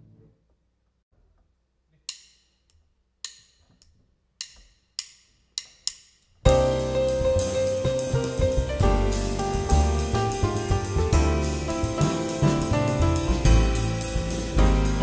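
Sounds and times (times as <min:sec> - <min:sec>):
drumsticks clicking: 0:02.1 - 0:06.4
jazz piano trio playing: 0:06.5 - 0:15.0.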